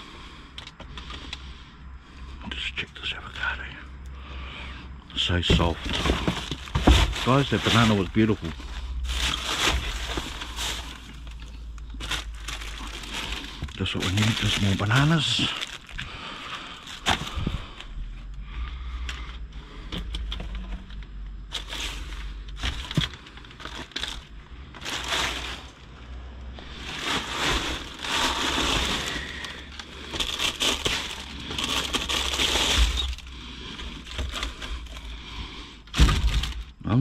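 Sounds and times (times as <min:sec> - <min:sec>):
low steady hum: 0:00.0 - 0:37.0
food packaging rustling: 0:05.3 - 0:17.9, 0:21.5 - 0:35.1.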